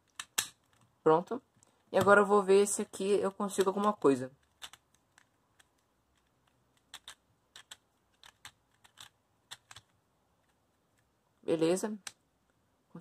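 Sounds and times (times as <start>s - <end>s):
plastic puzzle cube clicks: 0.0s - 0.9s, 3.5s - 11.1s.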